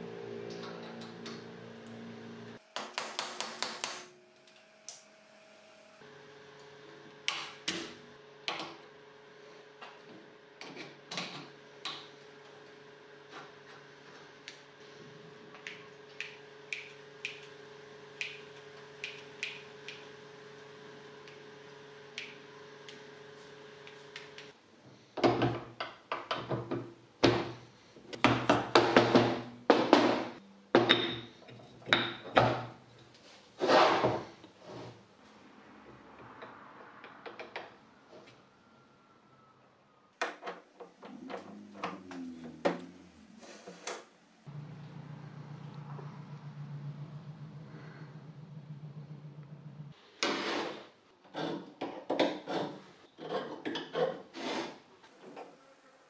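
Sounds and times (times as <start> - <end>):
steady low hum: 40.9 - 50.0.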